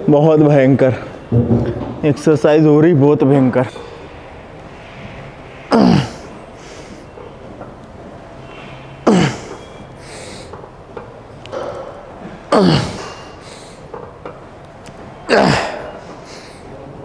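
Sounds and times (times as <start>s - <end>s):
quick breaths: 9.6s - 10.6s, 16.1s - 16.8s.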